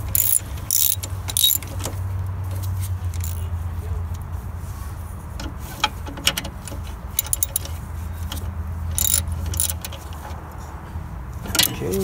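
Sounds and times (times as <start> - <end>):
socket wrench clicking on metal: 0.0 - 1.8, 3.1 - 3.4, 6.2 - 10.0.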